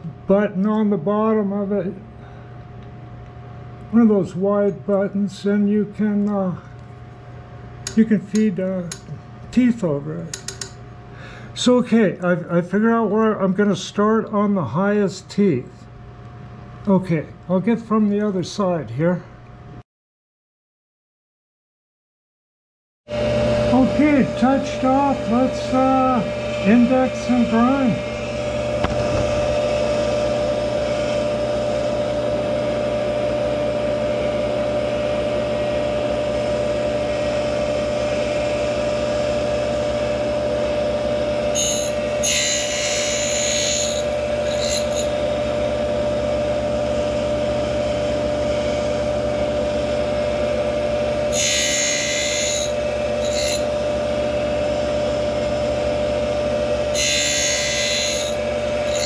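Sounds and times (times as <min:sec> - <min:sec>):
grinder whining: 0:23.1 - 0:59.0
grinding wheel hissing rasp: 0:41.5 - 0:45.4, 0:51.3 - 0:53.8, 0:56.9 - 0:59.0.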